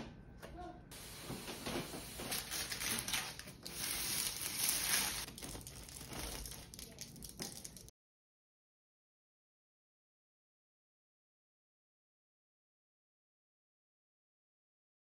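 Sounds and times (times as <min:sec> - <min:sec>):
parchment paper crinkling: 0:01.9 - 0:07.9.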